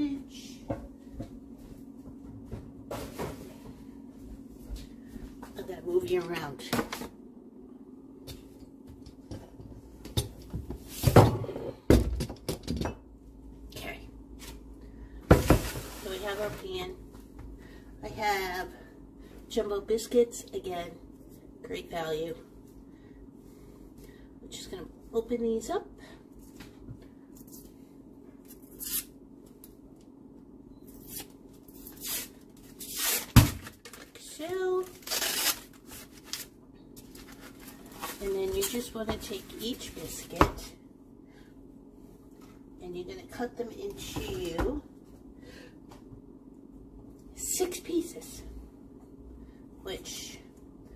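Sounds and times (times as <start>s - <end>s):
paper wrapper tearing: 34.9s - 36.5s.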